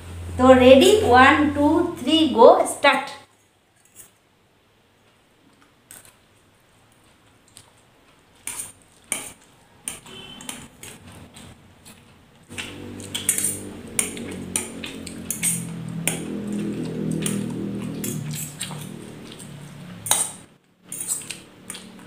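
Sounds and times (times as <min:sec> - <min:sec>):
low steady hum: 0:00.0 - 0:03.6, 0:09.1 - 0:22.0.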